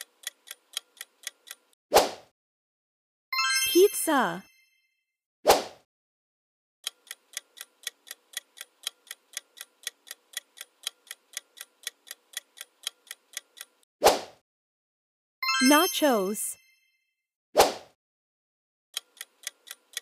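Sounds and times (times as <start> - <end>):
clock-like timer ticks: 0.0 - 1.8, 6.8 - 13.9, 19.0 - 20.0.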